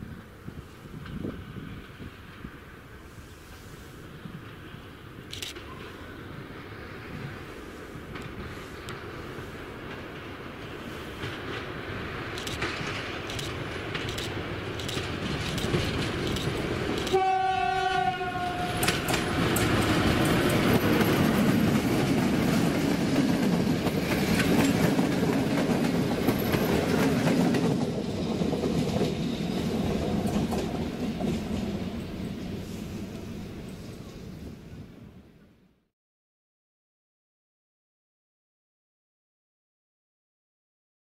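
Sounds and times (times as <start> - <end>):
locomotive engine passing: 4.2 - 35.2
wheels clicking over rail joints: 9.8 - 17.2, 18.7 - 31.7
locomotive horn blast: 17.0 - 19.7.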